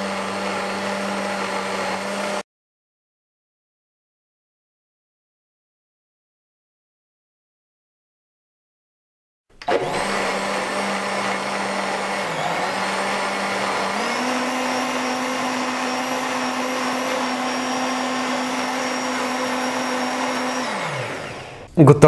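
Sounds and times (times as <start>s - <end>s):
blender motor running: 0.0s - 2.4s, 9.6s - 21.7s.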